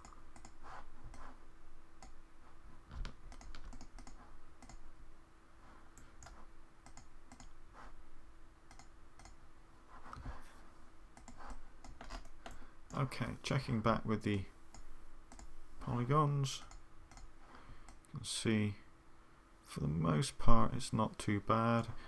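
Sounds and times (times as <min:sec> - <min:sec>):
faint steady hum: 0:00.0 - 0:22.0
mouse and keyboard clicks: 0:03.0 - 0:04.8.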